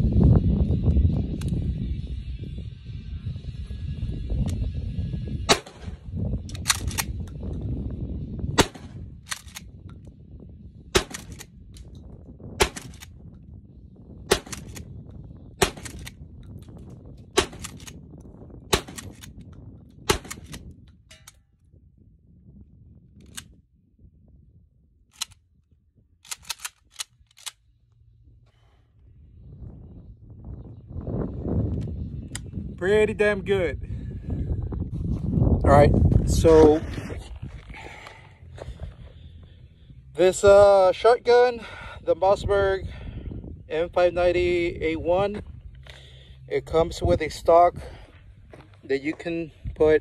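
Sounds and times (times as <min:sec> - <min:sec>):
shotgun firing: 0:05.5 - 0:06.0, 0:08.6 - 0:09.0, 0:10.9 - 0:11.4, 0:12.6 - 0:13.0, 0:14.3 - 0:14.8, 0:15.6 - 0:16.1, 0:17.4 - 0:17.9, 0:18.7 - 0:19.2, 0:20.1 - 0:20.6
shotgun slide racking clack: 0:06.5 - 0:07.2, 0:09.3 - 0:09.7, 0:14.4 - 0:14.9, 0:15.6 - 0:16.2, 0:17.4 - 0:18.0, 0:18.8 - 0:19.4, 0:26.2 - 0:27.6.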